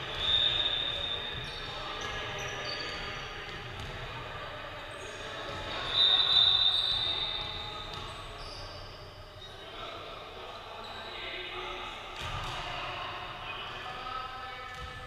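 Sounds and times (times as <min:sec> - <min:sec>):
voices: 0:00.0 - 0:15.0
referee's whistle: 0:00.1 - 0:01.6, 0:05.8 - 0:07.8
basketball bouncing on court: 0:03.5 - 0:04.1, 0:14.7 - 0:15.0.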